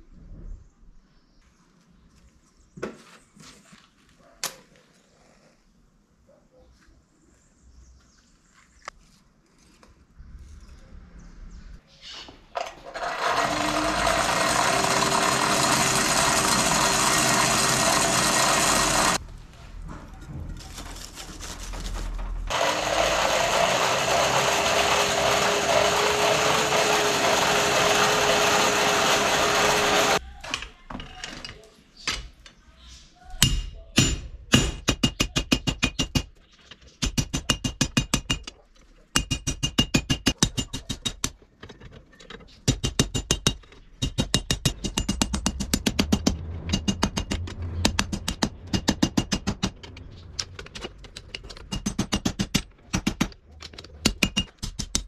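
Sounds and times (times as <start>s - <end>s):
forge blower humming: 12.9s - 19.2s, 22.5s - 30.2s.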